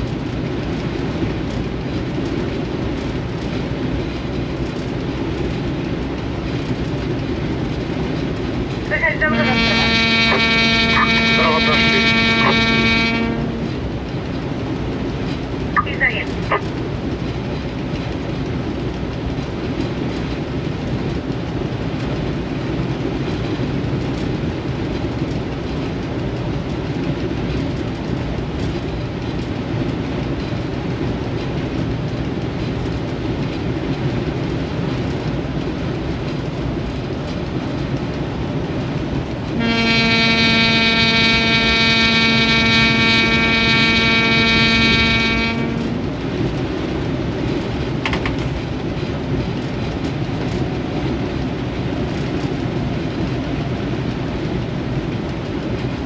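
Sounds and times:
diesel locomotive rumble: 0.0 - 56.0
locomotive horn long tone: 9.0 - 13.8, 39.5 - 46.1.

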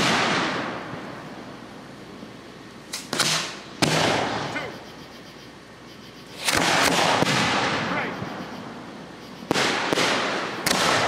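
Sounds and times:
fireworks shells bursting: 6.2 - 11.0.

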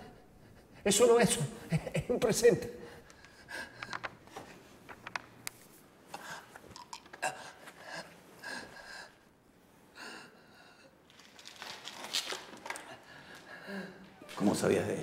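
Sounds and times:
cloth package rustling: 11.1 - 13.0.

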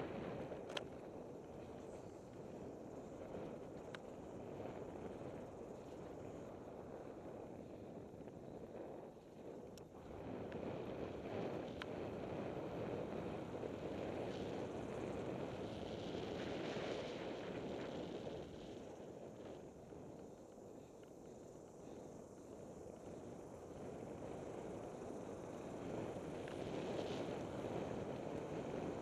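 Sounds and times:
wind over microphone: 0.0 - 29.0
bike clicks: 0.6 - 1.1.

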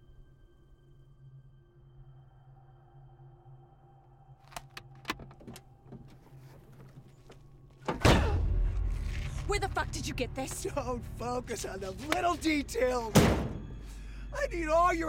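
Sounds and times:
handling clicks: 4.4 - 5.6.

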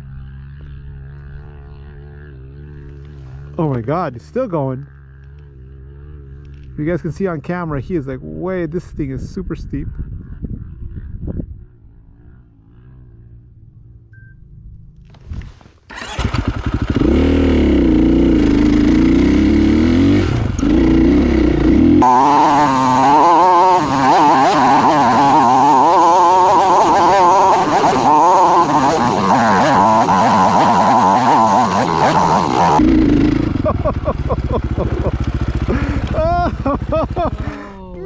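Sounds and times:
dirt bike engine revving: 15.6 - 37.9.

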